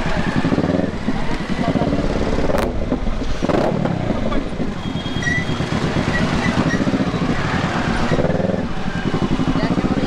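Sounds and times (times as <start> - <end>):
motorcycle engine at low revs: 5.5 - 10.0.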